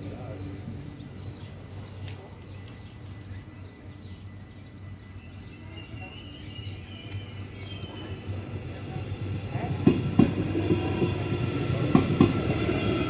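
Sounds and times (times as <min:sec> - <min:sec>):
birds chirping: 0:00.0 - 0:13.0
train wheels squealing: 0:03.2 - 0:08.6.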